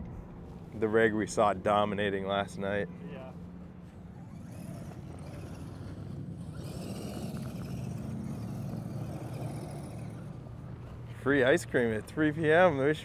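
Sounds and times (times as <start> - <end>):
steady low hum: 0.0 - 13.0
electric motor and gears whining: 3.9 - 11.0.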